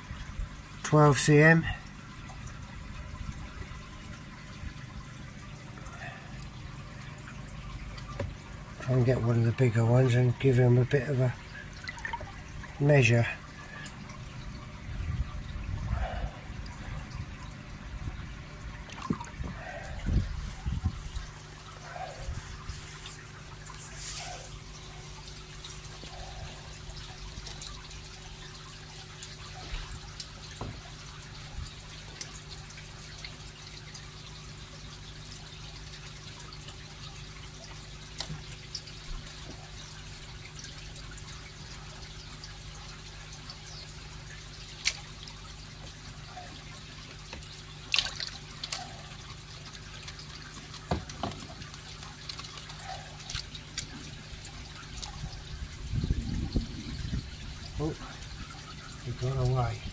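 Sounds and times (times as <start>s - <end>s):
steady low hum: 0.0s - 34.0s
water lapping and dripping: 0.0s - 59.9s
water splashes: 0.0s - 59.9s.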